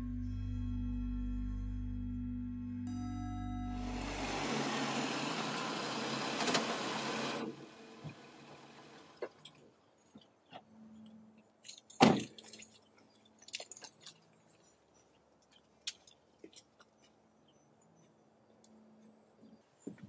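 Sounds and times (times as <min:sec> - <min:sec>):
car door shutting: 0:04.2 - 0:08.4
keys jingling: 0:11.6 - 0:14.4.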